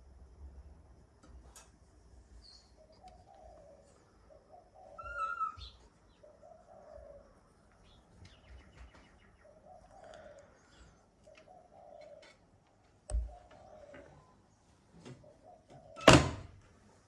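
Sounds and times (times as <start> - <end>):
dove cooing: 3.0 - 7.4, 9.4 - 12.4, 13.1 - 14.4.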